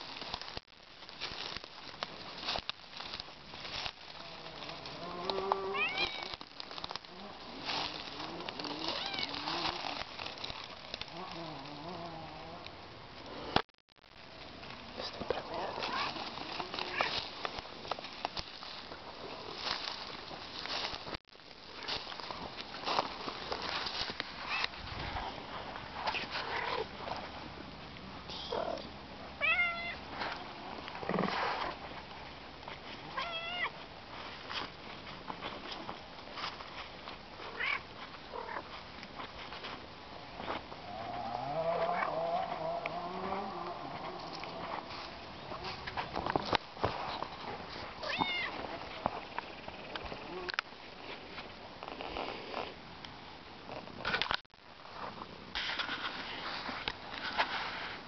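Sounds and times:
dry leaves rustling: 0:00.0 - 0:52.8
cat meowing: 0:05.6 - 0:06.3, 0:08.9 - 0:09.4, 0:29.4 - 0:30.0, 0:33.2 - 0:33.7, 0:48.0 - 0:48.6.

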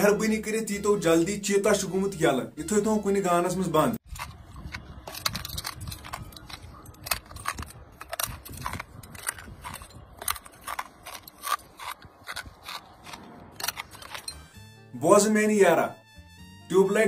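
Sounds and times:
glass crunching in mouth: 0:04.1 - 0:14.6.

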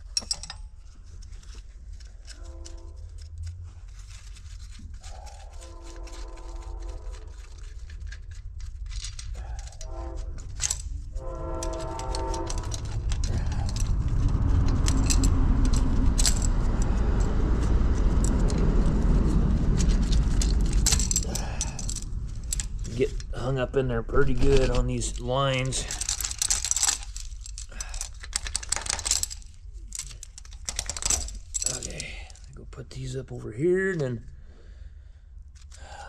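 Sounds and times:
wrench clinking on metal: 0:00.0 - 0:00.8
low rumble: 0:01.0 - 0:33.0
horn blasts: 0:09.8 - 0:13.1.

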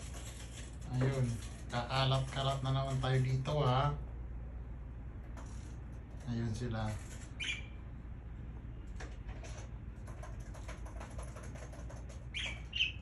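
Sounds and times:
soft scratchy bird chatter: 0:05.5 - 0:07.9, 0:09.4 - 0:13.0
budgerigars chirping: 0:07.4 - 0:07.8, 0:12.3 - 0:13.0.

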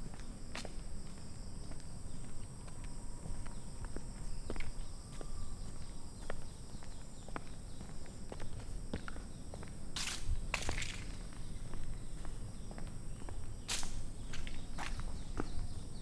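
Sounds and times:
footsteps walking: 0:00.0 - 0:15.8
insects chirring: 0:00.0 - 0:16.0.

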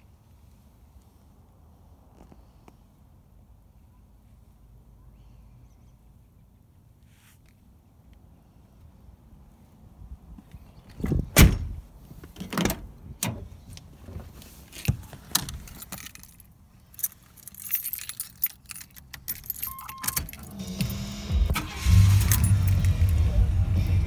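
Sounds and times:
keys jangling: 0:15.4 - 0:20.6, 0:22.1 - 0:23.2
short faint beep: 0:19.7 - 0:20.3.

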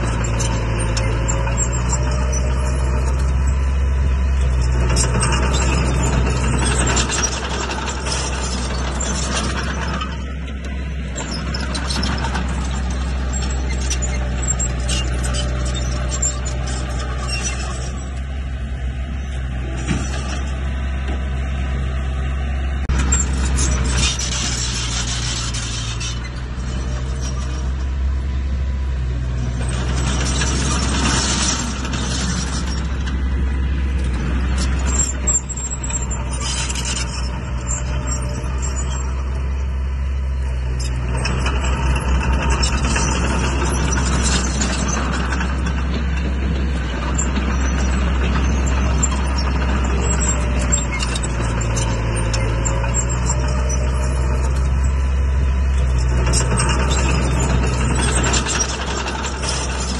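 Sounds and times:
bulldozer diesel engine droning: 0:00.0 - 0:59.9
steel tracks rattling and clanking: 0:04.5 - 0:18.3, 0:29.1 - 0:39.3, 0:40.8 - 0:59.9.

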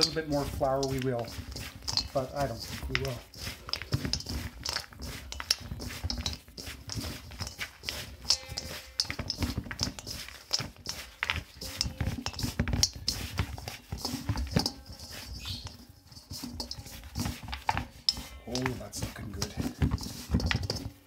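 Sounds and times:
hands squishing dough: 0:00.0 - 0:21.0.

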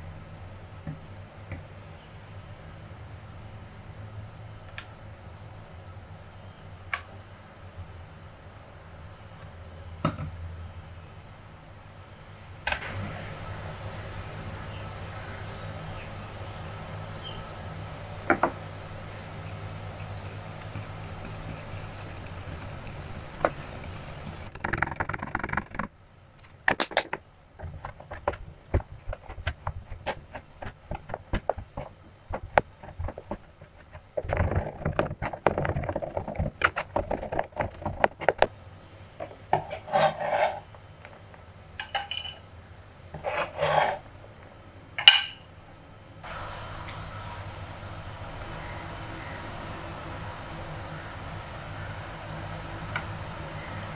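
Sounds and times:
knife scraping cutting board: 0:39.5 - 0:40.7, 0:43.2 - 0:44.0.

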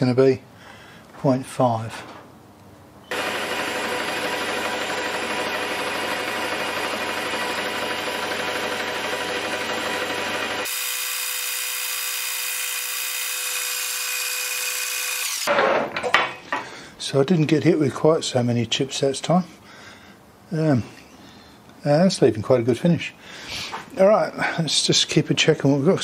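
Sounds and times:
metal lathe whirring: 0:03.1 - 0:15.5
tool cutting metal hiss: 0:10.4 - 0:15.5.

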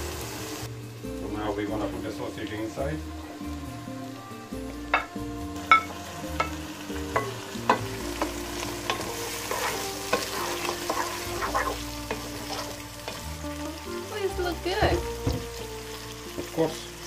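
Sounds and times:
sausage sizzling in pot: 0:00.0 - 0:17.0
wooden spoon scraping and knocking pot: 0:08.9 - 0:13.2.

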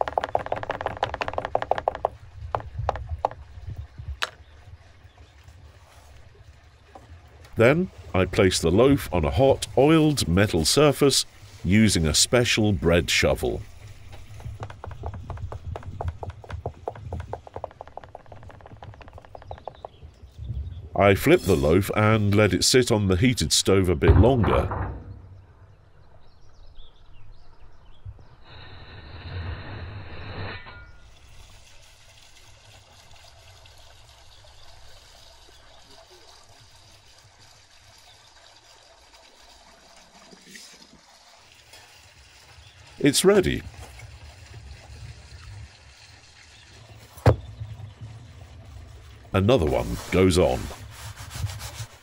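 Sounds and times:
oil crackling and popping: 0:00.0 - 0:03.5, 0:13.7 - 0:20.3.

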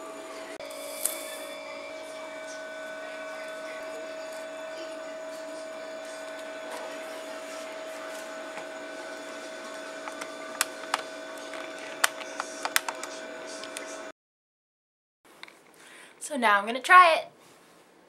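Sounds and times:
machine hum: 0:00.0 - 0:14.1.

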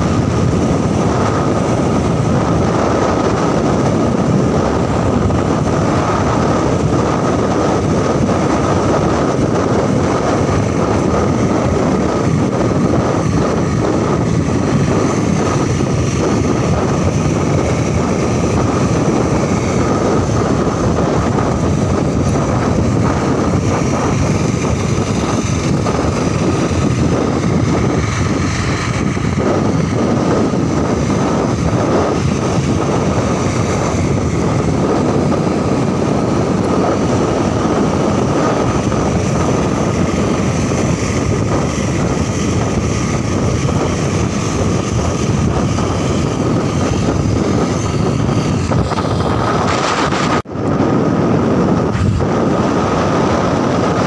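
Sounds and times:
motorcycle engine running: 0:00.0 - 0:54.0
wind rush on microphone: 0:00.0 - 0:54.0.

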